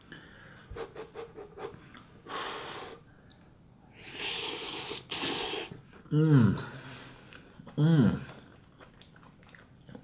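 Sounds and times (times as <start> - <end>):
person breathing heavily: 0.1 - 3.1
person slurping noodles: 4.0 - 5.8.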